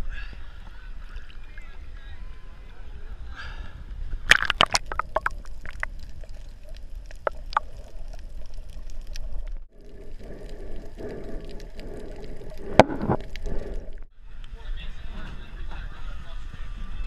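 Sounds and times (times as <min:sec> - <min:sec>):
water splashing against camera: 0:04.2 - 0:14.0
underwater clicks: 0:04.3 - 0:14.1.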